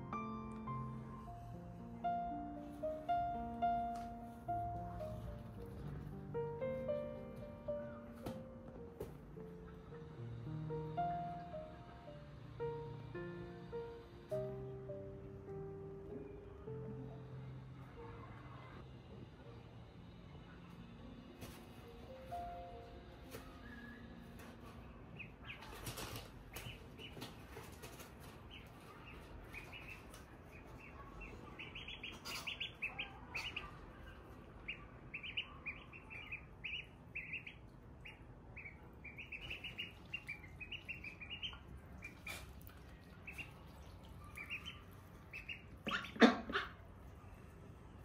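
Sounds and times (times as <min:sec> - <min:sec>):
ducklings peeping: 0:23.3 - 0:47.4.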